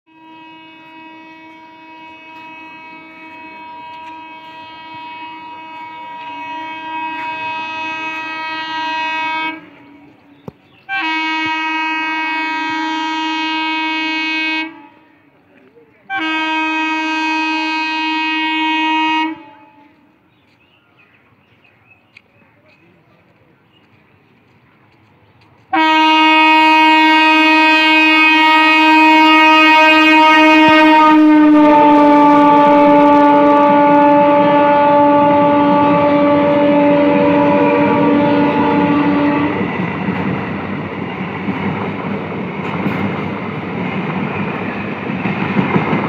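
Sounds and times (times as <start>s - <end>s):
electric train horn: 0.1s - 10.2s, 10.9s - 15.2s, 16.1s - 20.1s, 25.7s - 40.4s.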